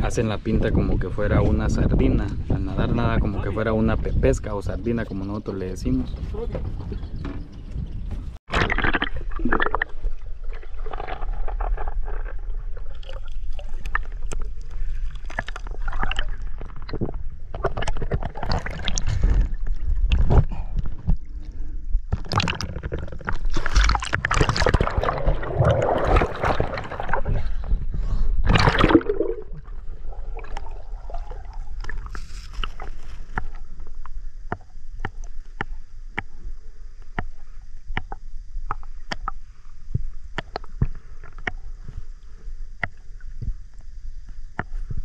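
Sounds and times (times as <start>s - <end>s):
water splashing and churning: 8.5s - 33.6s
sharp underwater clicks: 31.8s - 41.9s, 42.6s - 45.0s.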